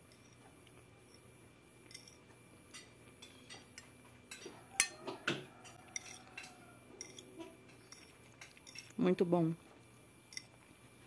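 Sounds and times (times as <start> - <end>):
cutlery clinking against a plate: 1.9 - 9.0.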